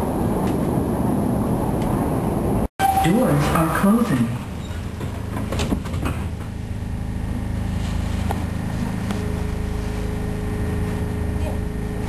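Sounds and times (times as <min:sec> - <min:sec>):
train humming and rumbling: 0:00.0 - 0:12.0
subway doors knocking shut: 0:02.8 - 0:06.8
steady whine: 0:05.0 - 0:12.0.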